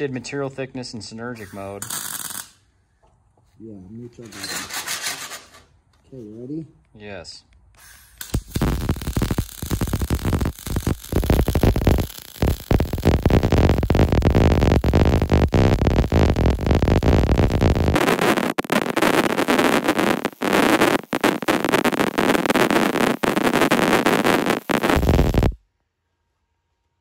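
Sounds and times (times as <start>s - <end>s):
welding arc crackling: 1.4s - 2.6s, 8.1s - 25.6s.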